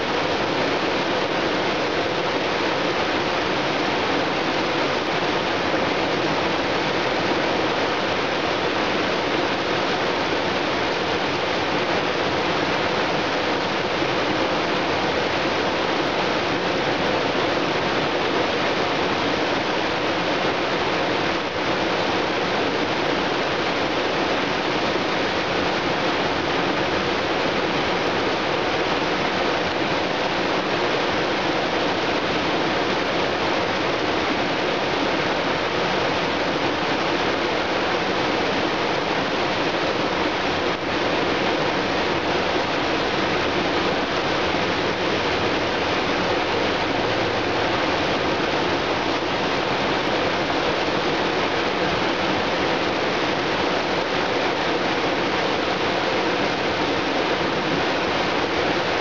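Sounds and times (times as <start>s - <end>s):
waterfall rushing water: 0.0s - 59.0s.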